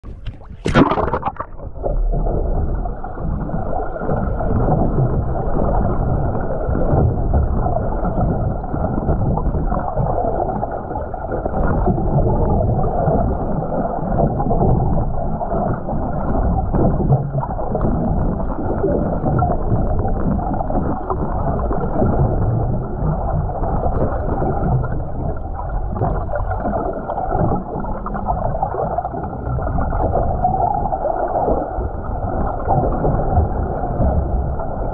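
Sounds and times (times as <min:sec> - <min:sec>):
camera splashing into water: 0:00.0 - 0:01.9
muffled underwater rush and gurgle: 0:00.0 - 0:34.9.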